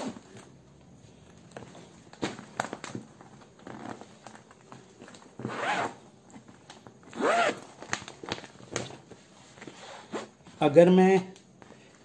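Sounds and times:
zipper being pulled open: 0:03.6 - 0:04.0, 0:05.4 - 0:06.0, 0:07.1 - 0:07.7.

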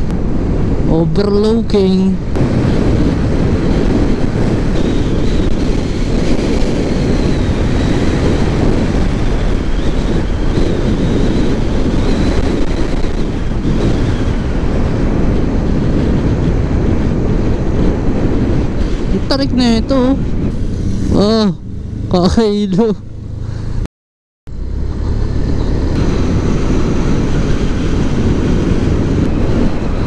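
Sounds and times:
wind rushing over microphone: 0:00.0 - 0:23.9, 0:24.5 - 0:30.0
motorcycle engine running: 0:24.5 - 0:30.0.

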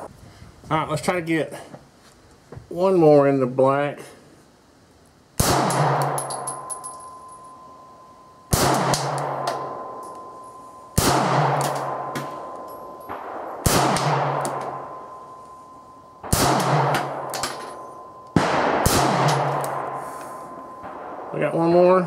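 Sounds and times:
pistol shots with ringing echo: 0:05.4 - 0:22.0.

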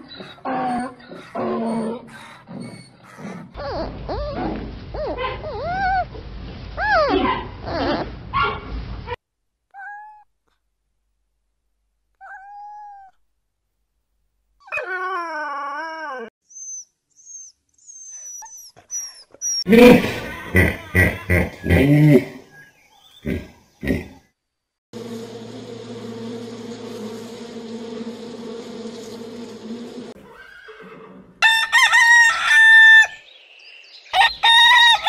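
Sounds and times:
high animal squeaks: 0:16.5 - 0:19.7.

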